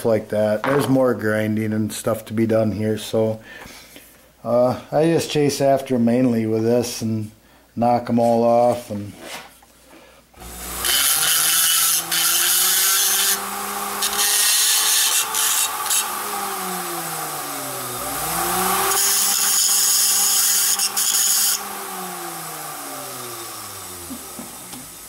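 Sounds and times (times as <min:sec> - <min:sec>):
rotary tool grinding steel: 0:10.4 - 0:22.4.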